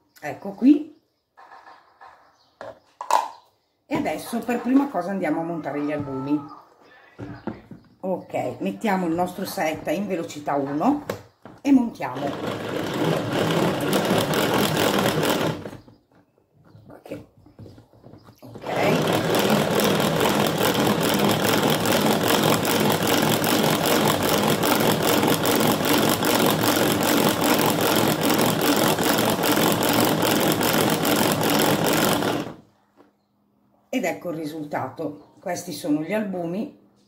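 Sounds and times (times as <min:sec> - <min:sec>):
hand-cranked whisk whirring rattle: 0:12.1 - 0:15.8, 0:18.5 - 0:32.6.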